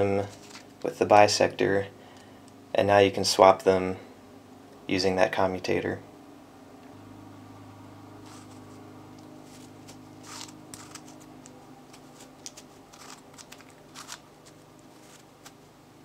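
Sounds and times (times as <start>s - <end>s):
faint steady hum: 0.0s - 16.0s
puzzle pieces scraping: 8.3s - 8.6s, 9.4s - 15.6s.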